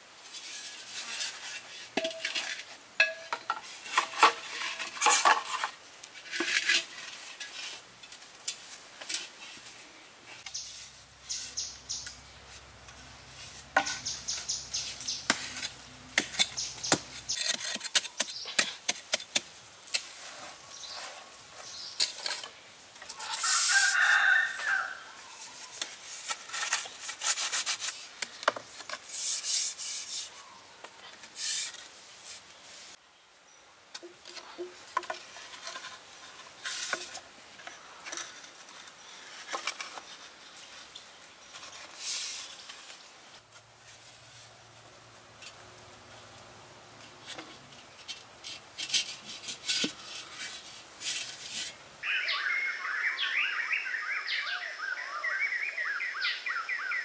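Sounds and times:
scraping and scooping dirt: 0.2 - 33.0, 33.9 - 52.0
bamboo pipes knocking: 3.0 - 4.4
rooster crowing: 23.4 - 25.2.

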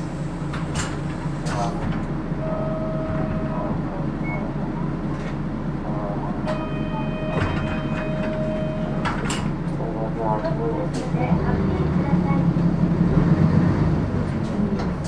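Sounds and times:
bus engine idling: 0.0 - 15.0
steady electronic tone: 6.5 - 9.5.

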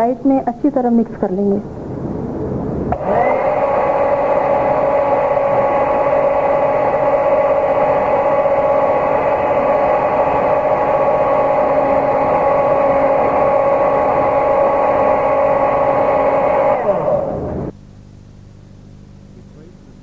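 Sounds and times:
electric mixer motor whine: 2.9 - 17.8.

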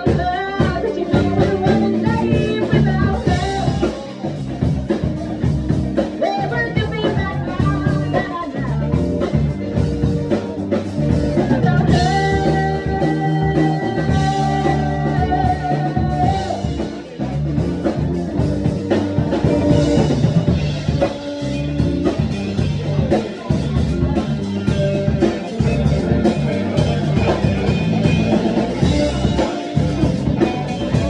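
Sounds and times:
female lead singer: 0.0 - 4.4, 6.0 - 9.4, 11.2 - 17.0
live rock band playing: 0.0 - 31.0.

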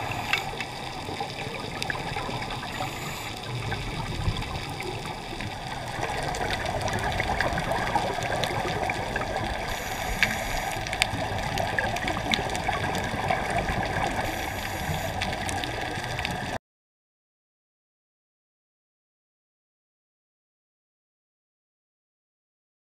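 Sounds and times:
fine underwater crackling: 0.0 - 16.6
muffled underwater water rush: 0.0 - 16.6.

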